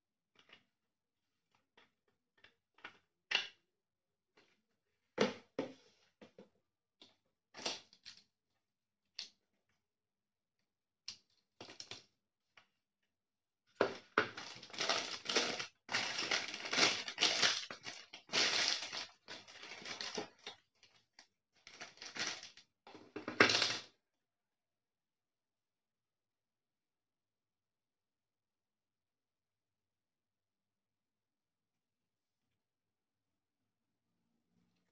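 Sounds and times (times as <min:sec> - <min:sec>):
packing wrap rustling: 0:14.4 - 0:21.0, 0:21.6 - 0:22.6.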